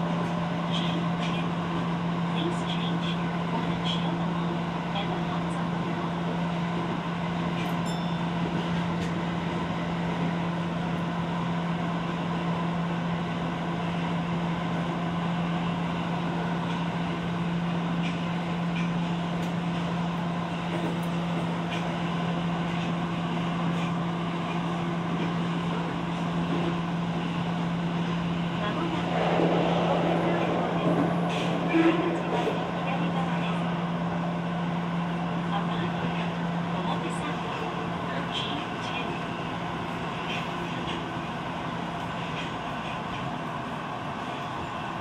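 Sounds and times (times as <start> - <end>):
constant low hum: 0.0 - 43.2
subway wheels rumbling on rail: 0.0 - 45.0.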